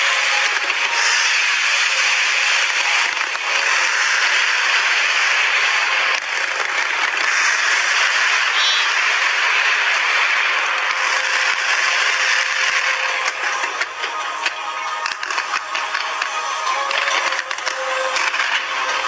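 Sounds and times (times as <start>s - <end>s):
fireworks crackling: 0.0s - 19.0s.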